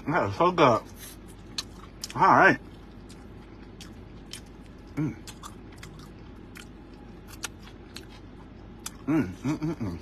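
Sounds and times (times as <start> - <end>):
wet eating clicks and smacks: 1.4 - 9.0.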